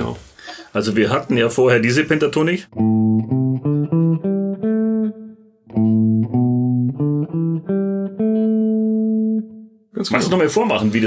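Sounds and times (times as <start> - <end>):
clean electric guitar notes: 2.7 - 9.8.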